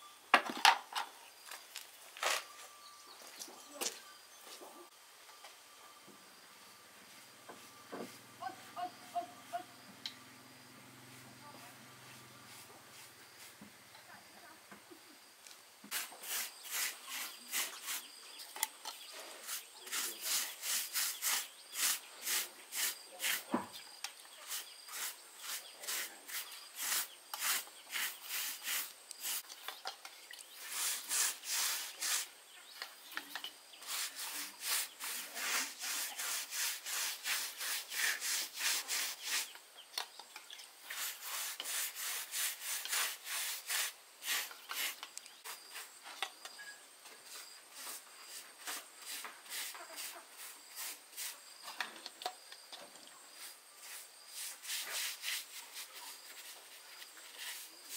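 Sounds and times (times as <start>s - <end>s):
hand tool rubbing wood: 15.9s - 18.2s, 19.2s - 23.7s, 24.4s - 29.5s, 30.6s - 32.4s, 33.8s - 39.6s, 40.9s - 46.0s, 47.3s - 51.4s, 53.4s - 57.9s.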